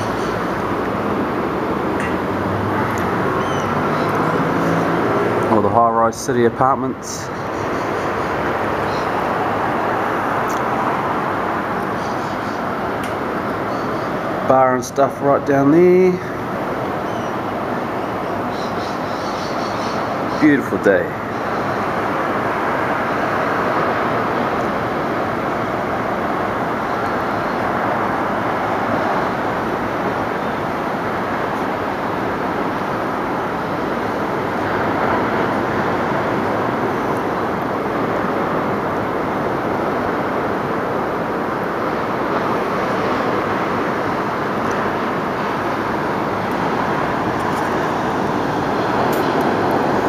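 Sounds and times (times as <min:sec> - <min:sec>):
road traffic: 0:00.0 - 0:50.0
surf breaking on beach: 0:20.0 - 0:50.0.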